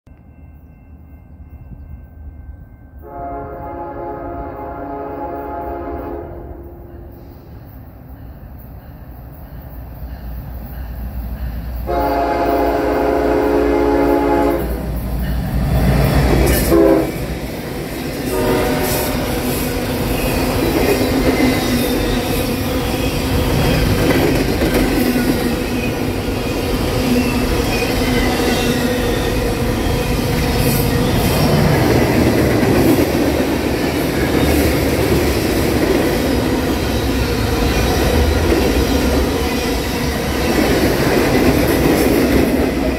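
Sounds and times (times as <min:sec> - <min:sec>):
train rumbling and wheel clatter: 0:00.0 - 0:42.9
train air horn: 0:03.0 - 0:07.2, 0:11.8 - 0:14.9, 0:16.6 - 0:17.2, 0:18.2 - 0:19.5.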